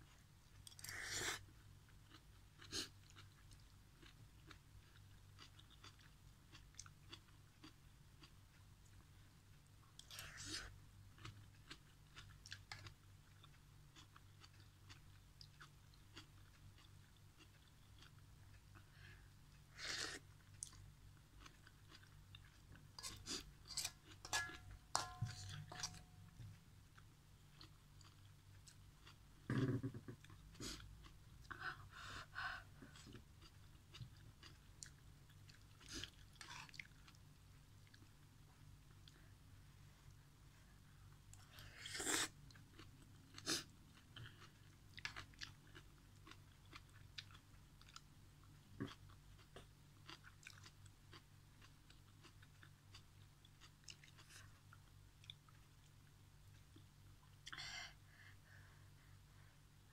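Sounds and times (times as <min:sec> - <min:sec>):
faint low hum: 0:00.0 - 0:59.9
chewing crunchy food: 0:00.1 - 0:32.0, 0:32.6 - 0:39.3, 0:41.2 - 0:57.6
metal spoon clinking on wok: 0:23.8 - 0:25.9.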